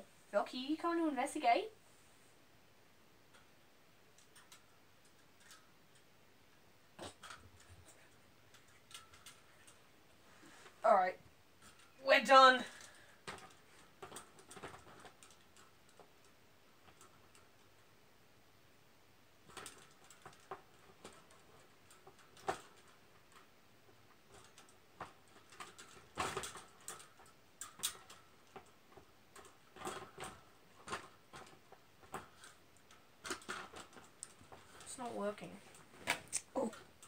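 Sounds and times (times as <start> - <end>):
wire birdcage clicking and rattling: 4.1 - 6.1, 7.0 - 9.8, 11.6 - 12.0, 12.6 - 17.8, 19.4 - 37.0.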